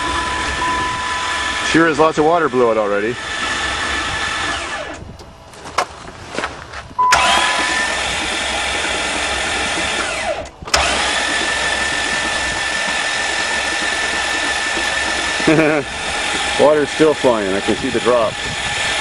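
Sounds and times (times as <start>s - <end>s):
starter motor cranking engine: 0.0s - 5.9s, 7.0s - 19.0s
starter clicks: 4.8s - 15.6s.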